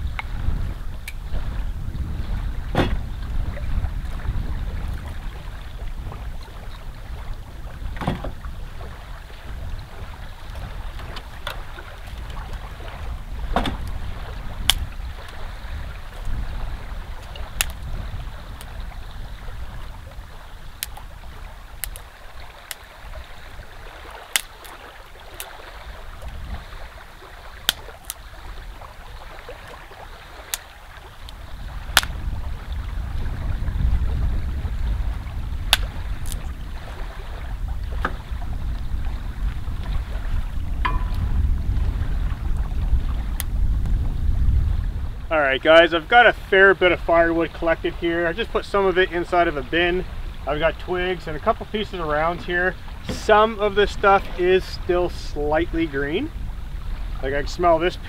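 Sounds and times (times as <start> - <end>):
wind buffeting microphone: 0.0 - 58.0
sharp snaps: 17.6 - 17.8, 20.8 - 21.1, 21.8 - 22.9, 24.3 - 24.8, 27.6 - 28.2, 32.0 - 32.2, 35.7 - 36.4.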